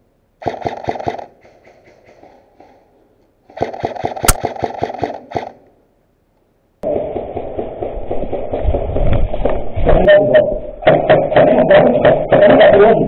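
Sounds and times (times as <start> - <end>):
airsoft guns firing bursts: 0.4 - 1.3, 3.5 - 5.6
sharp crack: 4.2 - 4.7.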